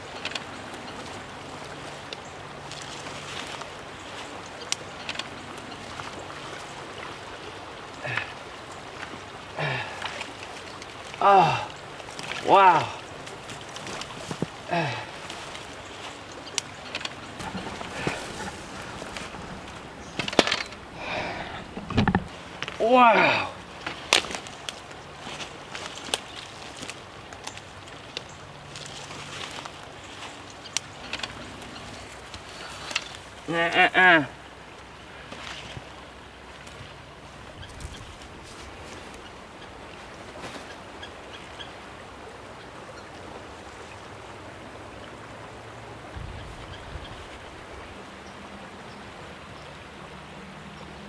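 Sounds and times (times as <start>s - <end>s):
background hiss: 0.0s - 51.0s
man exclaiming excitedly: 11.2s - 11.7s, 12.4s - 13.0s, 22.8s - 23.6s, 33.5s - 34.3s
net rustling: 17.1s - 20.9s
footsteps on dirt: 17.2s - 20.8s.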